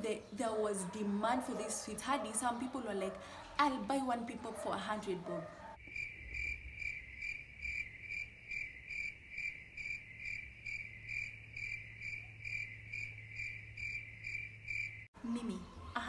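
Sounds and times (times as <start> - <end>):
cricket chirping: 5.8 - 15.1.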